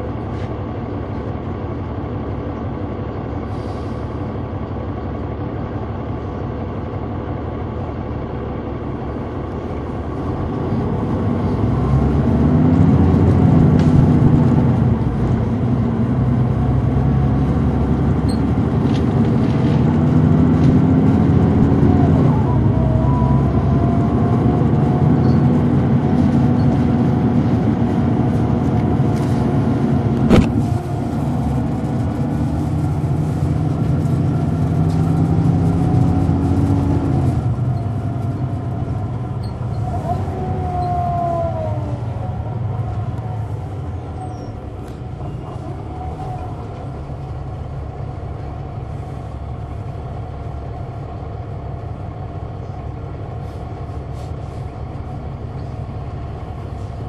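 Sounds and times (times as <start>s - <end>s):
bus engine driving: 0.0s - 57.0s.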